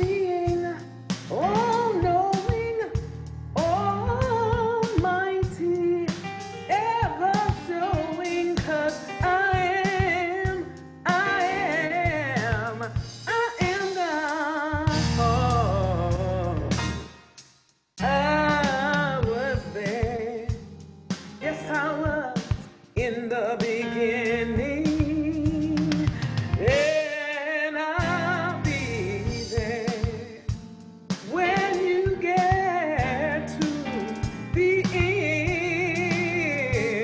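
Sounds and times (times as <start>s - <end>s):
woman singing with vibrato: 0.0s - 3.0s, 6.7s - 16.7s, 18.0s - 20.5s, 21.4s - 30.5s, 31.2s - 37.0s
steady bass: 0.0s - 13.2s, 14.7s - 17.1s, 18.0s - 22.1s, 24.1s - 26.9s, 28.0s - 30.7s
drums: 0.0s - 37.0s.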